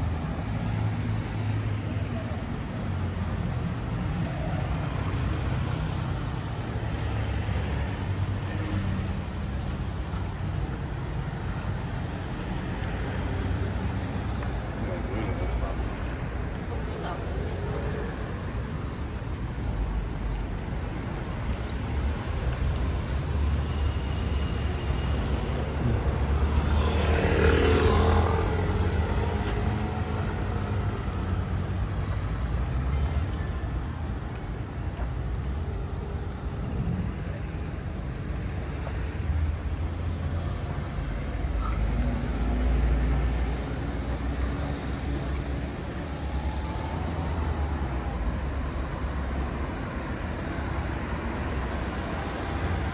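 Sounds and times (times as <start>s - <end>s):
road traffic rumble: 0.0s - 52.9s
vehicle passing: 25.1s - 31.6s.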